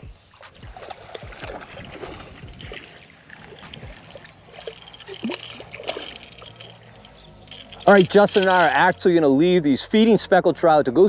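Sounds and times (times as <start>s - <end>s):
water lapping against boat hull: 0.0s - 8.8s.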